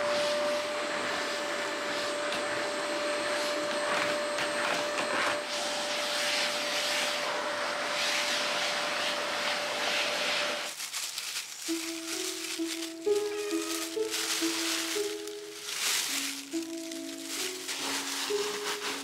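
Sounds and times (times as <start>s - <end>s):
vacuum cleaner motor whine: 0.0s - 10.7s, 11.6s - 19.0s
vacuum nozzle rushing hiss: 5.4s - 10.7s, 11.8s - 19.0s.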